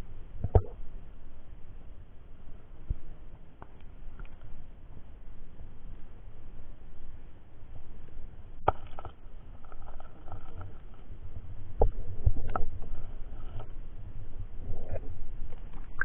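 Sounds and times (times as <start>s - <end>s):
muffled underwater water rumbling: 9.4s - 16.0s.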